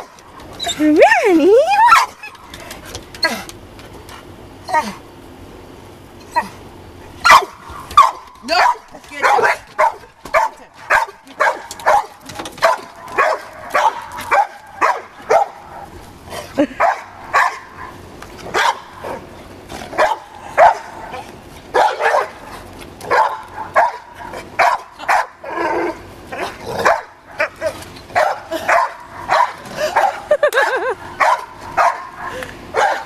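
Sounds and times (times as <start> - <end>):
dogs barking: 7.2 - 16.0, 16.8 - 19.3, 19.9 - 33.0.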